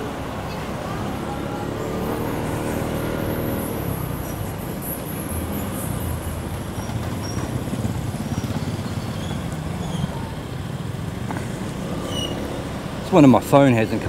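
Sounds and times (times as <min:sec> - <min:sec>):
road and wind noise: 0:00.0 - 0:14.0
motorcycle engine running: 0:05.2 - 0:12.0.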